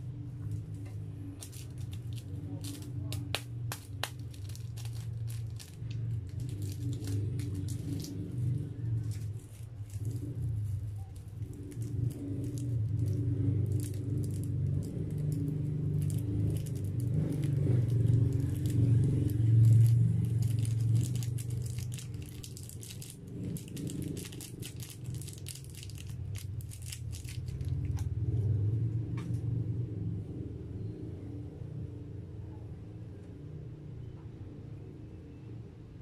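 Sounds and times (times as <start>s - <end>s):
plastic sachet crinkling and rattling: 0.4s - 28.0s.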